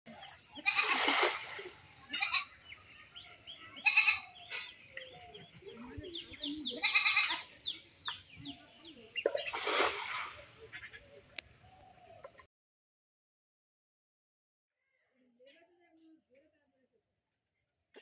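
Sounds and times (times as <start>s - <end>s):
small birds chirping: 0.1s - 12.5s
animal bleating: 0.6s - 1.1s, 2.1s - 2.6s, 3.8s - 4.4s, 6.7s - 7.5s
cast net splashing into water: 0.7s - 1.9s, 9.2s - 10.5s.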